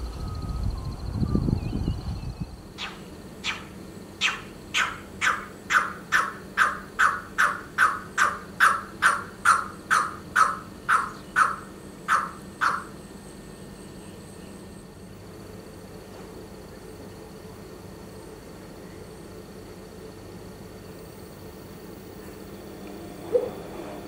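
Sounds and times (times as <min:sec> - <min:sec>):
pheasant coucal calling: 0:02.8 - 0:13.1, 0:23.3 - 0:23.6.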